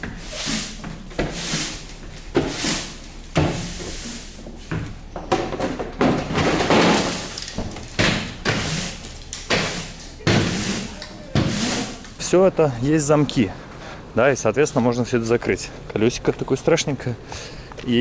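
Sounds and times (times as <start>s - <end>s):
push broom sweeping wooden floor: 0.0s - 5.0s, 6.6s - 12.2s.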